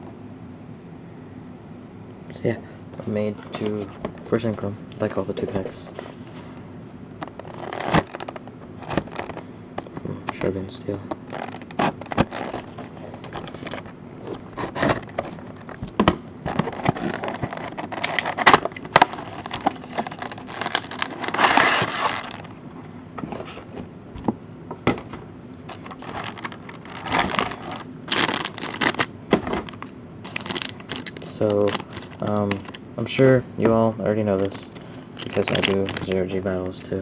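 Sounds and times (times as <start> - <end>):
plastic crinkling rustle: 7.2 - 9.5, 10.2 - 23.8, 24.9 - 32.8, 34.4 - 37.0
plastic packaging crackling: 7.2 - 9.5, 10.2 - 22.6, 25.7 - 32.8, 34.4 - 37.0.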